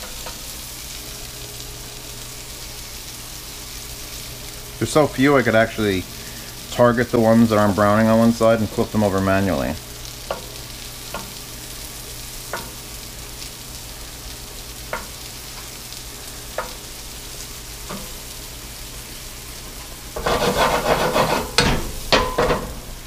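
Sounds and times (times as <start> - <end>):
mushrooms sizzling in a pan: 0.0 - 23.0
clattering and scraping in pan: 20.2 - 23.0.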